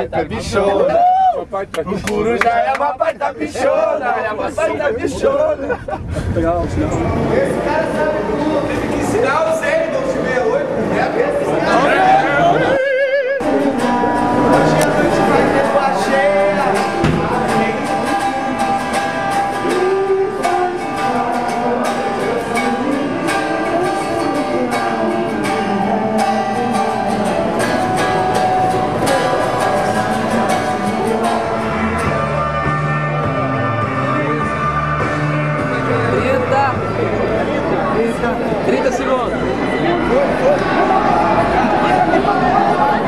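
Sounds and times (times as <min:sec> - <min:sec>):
low bass notes: 0:05.9 - 0:09.3, 0:13.4 - 0:24.0, 0:24.6 - 0:38.7
man singing: 0:11.6 - 0:38.0
guitar strumming: 0:13.4 - 0:43.0.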